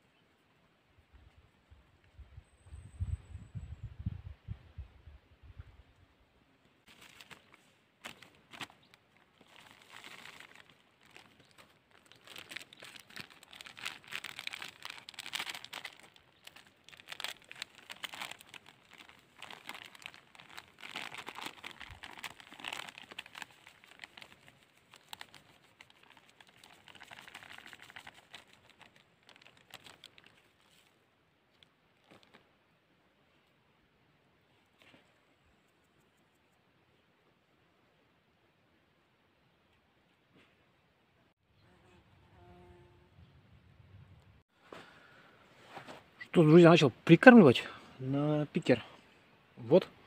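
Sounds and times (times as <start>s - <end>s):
plastic packaging crinkling: 6.9s - 30.9s, 31.5s - 32.4s.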